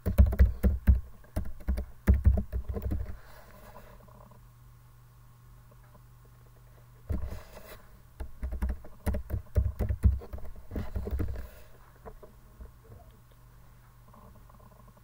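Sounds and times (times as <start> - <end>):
keyboard typing: 0.0 - 3.2, 8.2 - 11.4
faint steady hum: 0.0 - 15.0.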